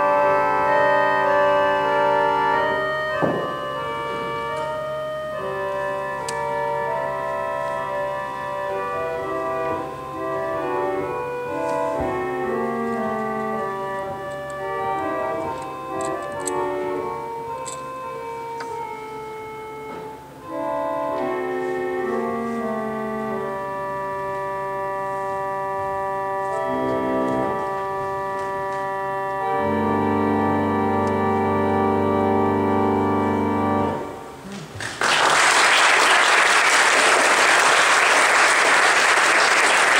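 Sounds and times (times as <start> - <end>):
reed organ chords: 0.0 - 34.5
audience applause: 34.5 - 39.9.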